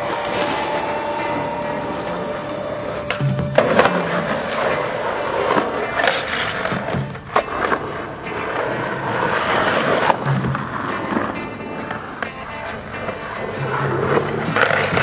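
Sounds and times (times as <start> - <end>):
music: 0.0 - 15.0
skateboard clacking on ground: 0.0 - 15.0
skateboard wheels rolling on concrete: 0.0 - 15.0.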